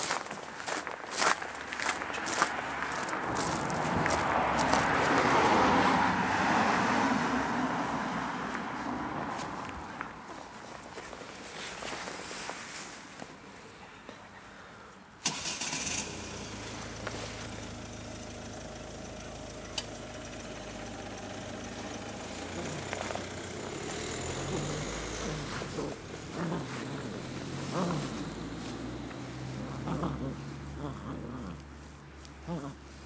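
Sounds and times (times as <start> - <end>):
vehicle engine starting and idling: 15.2 - 30.7.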